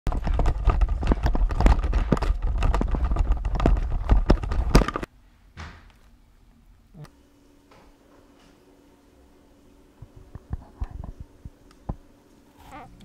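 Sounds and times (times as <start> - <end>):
running footsteps: 0.1 - 5.1.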